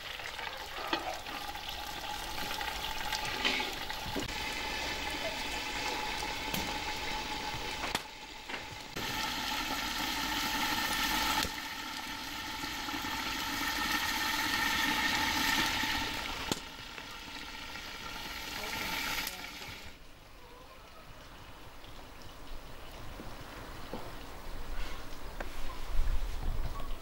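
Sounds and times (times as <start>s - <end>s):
covered pan sizzling: 0.0s - 20.0s.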